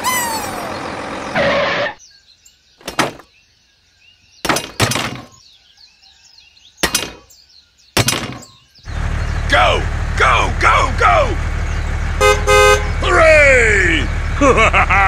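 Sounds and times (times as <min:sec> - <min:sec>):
loud mechanical noise: 0:00.0 - 0:02.0, 0:08.9 - 0:15.0
faint bird chirps: 0:02.0 - 0:09.5.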